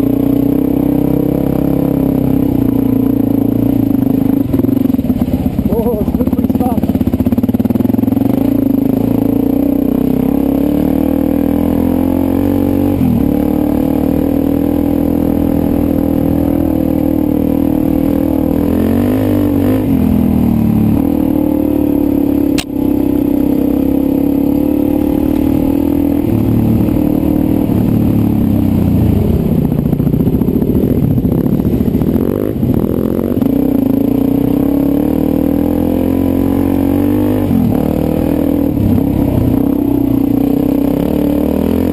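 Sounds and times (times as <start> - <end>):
dirt bike engine revving: 0.0 - 41.9
sharp click: 22.6 - 22.8.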